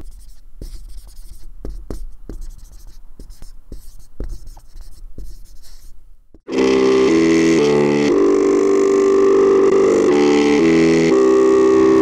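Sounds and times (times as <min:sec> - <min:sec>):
synthesizer chords: 0:06.5 - 0:12.0.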